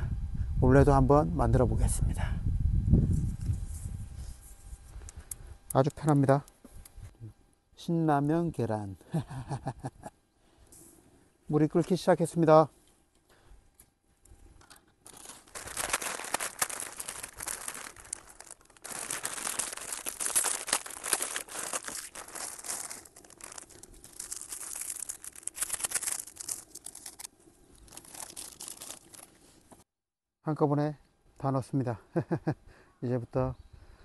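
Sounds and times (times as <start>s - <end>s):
noodle packet crinkling: 14.6s - 29.7s.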